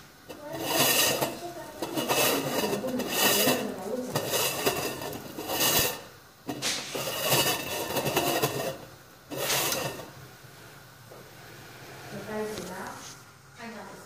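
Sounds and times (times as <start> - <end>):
metal lid rasping on pan rim: 0.3 - 10.1.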